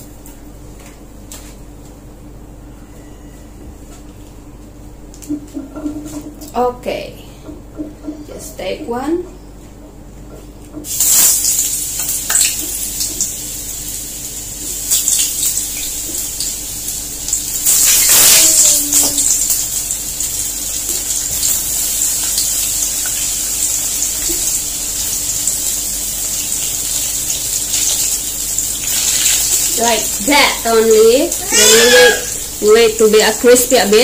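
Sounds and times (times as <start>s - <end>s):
slices sizzling in hot oil: 10.8s - 34.0s.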